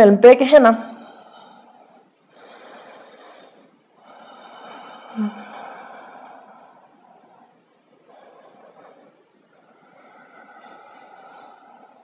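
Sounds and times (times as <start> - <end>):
woman breathing slowly: 0.8 - 12.0.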